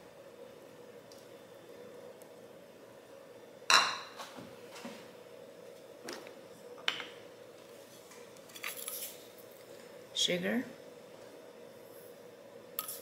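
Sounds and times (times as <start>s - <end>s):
faint steady hum: 0.0s - 13.0s
dishes clinking on stone countertop: 3.7s - 4.2s.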